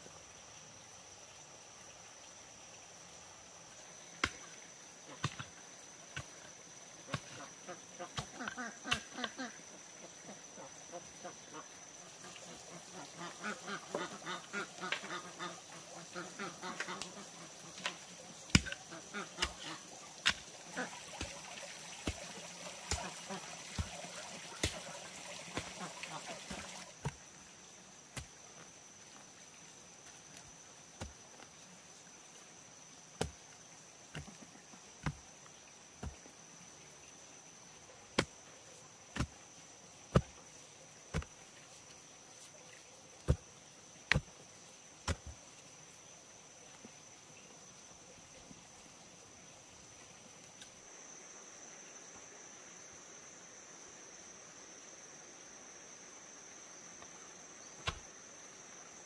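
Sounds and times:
high insect buzz: 0.0 - 59.0
wooden pole thudding into earth: 41.1 - 41.4, 44.1 - 44.3, 45.0 - 45.4, 57.8 - 58.1.

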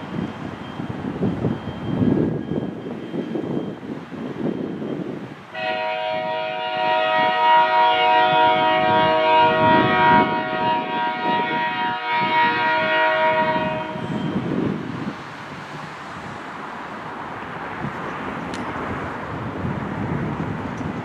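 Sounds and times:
locomotive air horn chord: 5.5 - 14.3.

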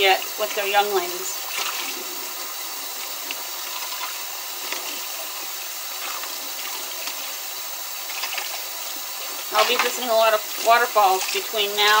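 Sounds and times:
faucet running into sink: 0.0 - 12.0.

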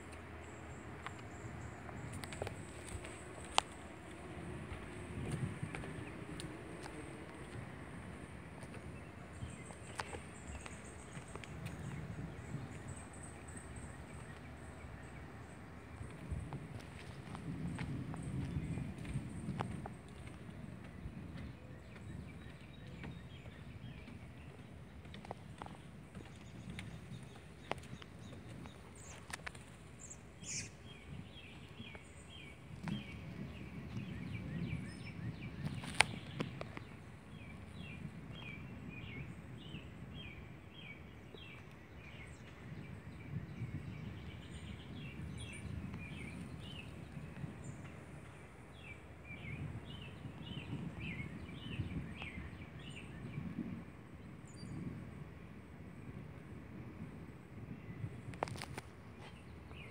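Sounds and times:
birds chirping: 0.0 - 53.5
low rumble: 10.3 - 29.0.

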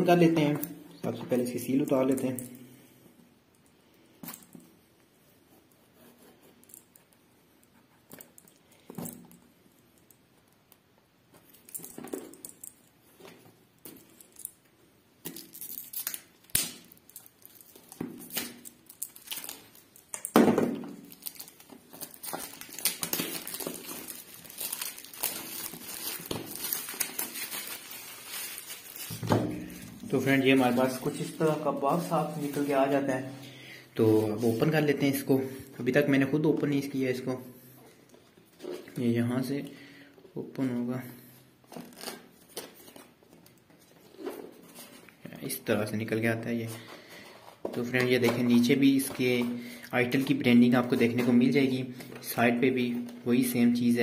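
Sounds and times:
plastic wrap crinkling: 15.3 - 33.2.

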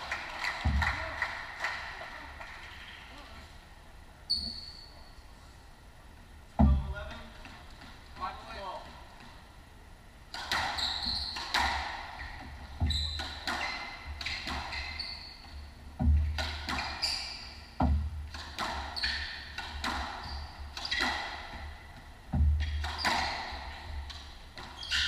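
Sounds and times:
shoes squeaking on wooden floor: 4.3 - 5.0, 10.8 - 11.5, 12.2 - 18.0, 20.1 - 24.0, 24.6 - 25.0
squash ball hitting rackets and walls: 10.3 - 25.0.

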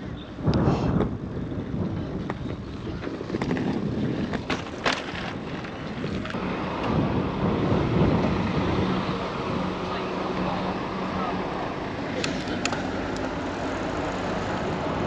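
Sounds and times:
wind on microphone: 0.0 - 11.9.

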